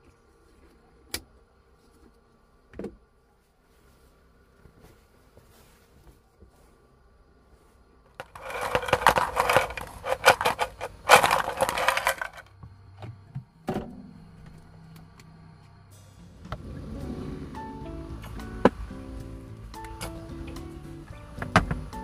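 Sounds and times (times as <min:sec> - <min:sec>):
crinkling handling noise: 0:07.5 - 0:13.2.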